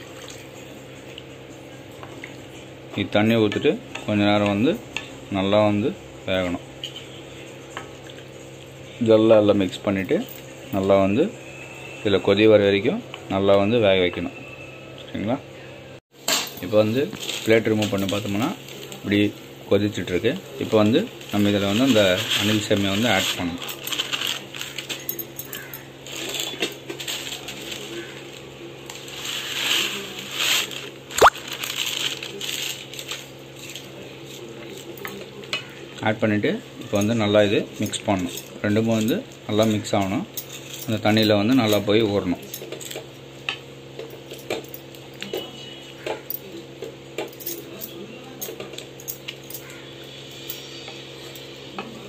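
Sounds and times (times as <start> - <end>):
plastic packet crinkling: 29.1 - 33.3.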